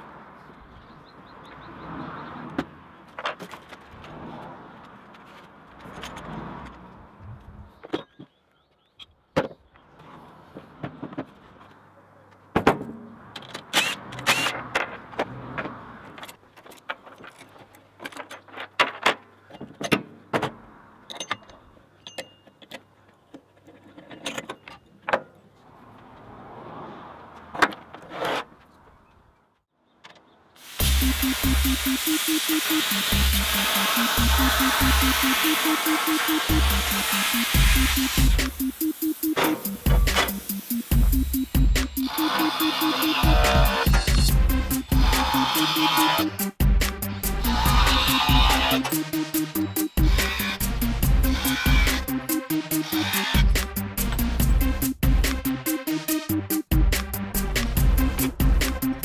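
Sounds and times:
parts clinking on workbench: 21.1s - 22.8s
screwdriver working: 50.0s - 52.0s, 52.7s - 53.5s.

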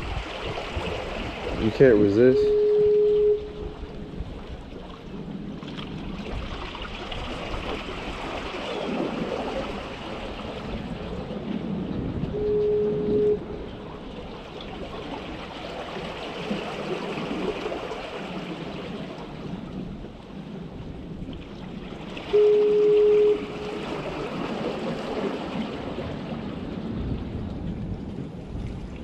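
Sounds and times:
surf: 0.0s - 29.0s
loud steady tone: 2.3s - 4.0s, 12.3s - 13.7s, 22.3s - 24.0s
water gurgling among rocks: 4.7s - 11.3s, 13.8s - 19.4s.

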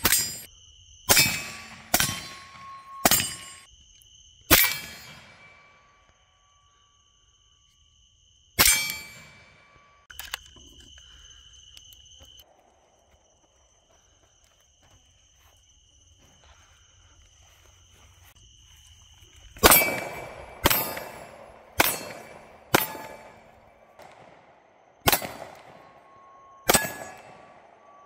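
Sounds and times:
handgun shots with echo: 19.6s - 24.5s, 25.1s - 25.9s, 26.7s - 27.6s.

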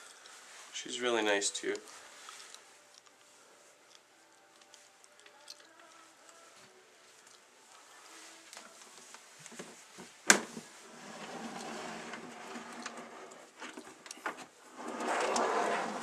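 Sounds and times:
plastic tub scraping and rustling: 10.5s - 16.0s.

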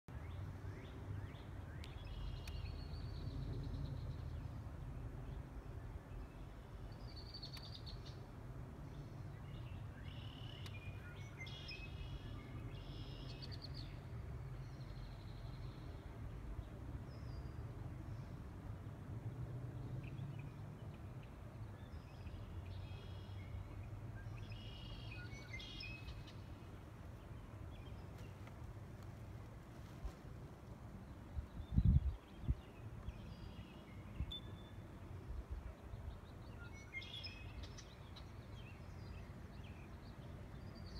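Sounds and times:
wind rumble on microphone: 27.8s - 34.3s
wind buffeting microphone: 31.2s - 32.8s.

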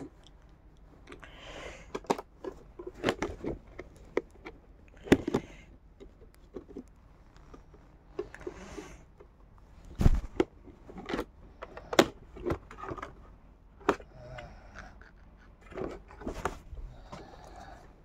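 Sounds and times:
cardboard box knocks and scrapes: 10.0s - 10.4s.

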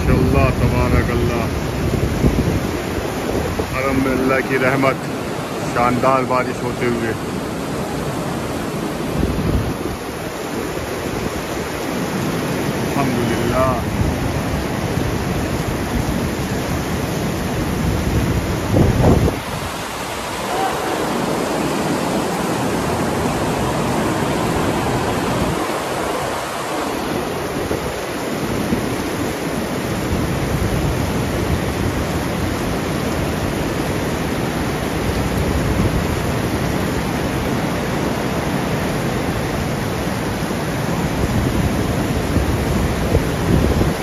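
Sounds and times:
heavy rain pouring: 0.0s - 44.0s.

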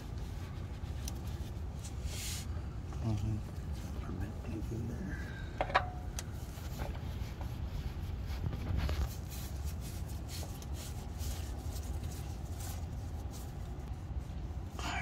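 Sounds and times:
gloved hands rubbing: 0.0s - 2.6s, 6.3s - 14.8s
steady low rumble: 0.0s - 15.0s.

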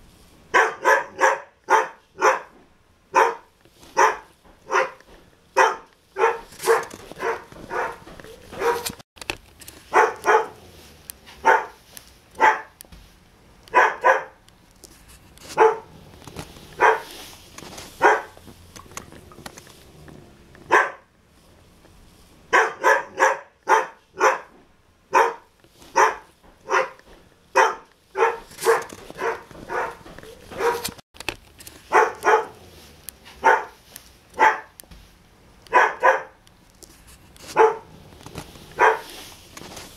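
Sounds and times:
dog barking: 0.5s - 5.0s, 5.6s - 9.0s, 9.9s - 10.6s, 11.3s - 11.8s, 12.4s - 12.8s, 13.7s - 14.4s, 15.6s - 16.0s, 16.8s - 17.1s, 18.0s - 18.4s, 20.7s - 21.1s, 22.5s - 31.0s, 31.9s - 32.6s, 33.3s - 33.8s, 34.4s - 34.8s, 35.7s - 36.4s, 37.5s - 37.9s, 38.8s - 39.1s.

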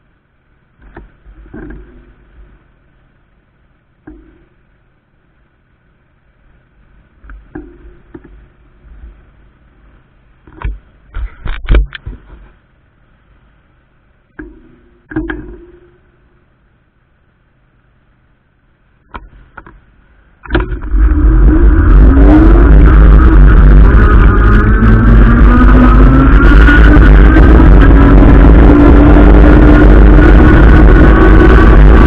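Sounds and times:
rush of wind and road noise: 0.8s - 2.9s, 19.1s - 32.0s
sharp knocks and clicks: 14.3s - 15.9s.

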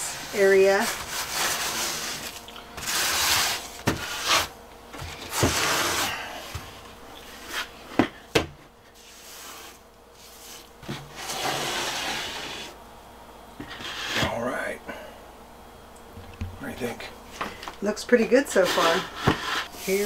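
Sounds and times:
grout float scraping tiles: 0.0s - 4.5s, 5.2s - 6.2s, 9.0s - 12.8s, 18.5s - 20.0s.

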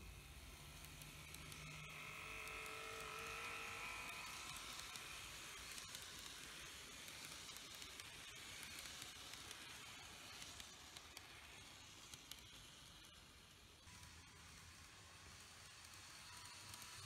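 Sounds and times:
model train motor whining: 0.0s - 17.0s
wheels clicking on rails: 0.2s - 17.0s.

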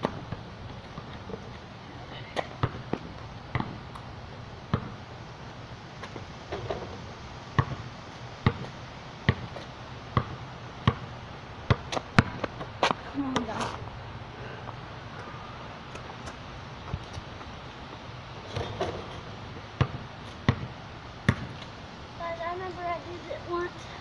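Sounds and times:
basketball bouncing on pavement: 0.0s - 1.7s, 2.3s - 4.1s, 4.7s - 5.1s, 6.0s - 13.9s, 15.9s - 21.8s.

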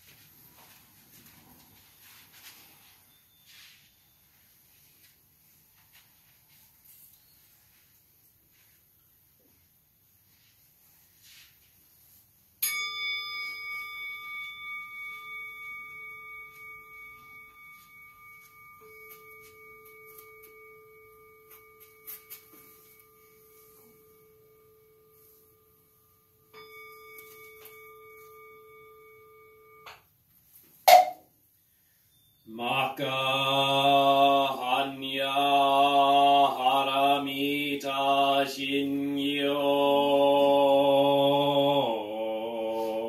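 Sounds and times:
bowl bell ringing: 12.6s - 30.1s.

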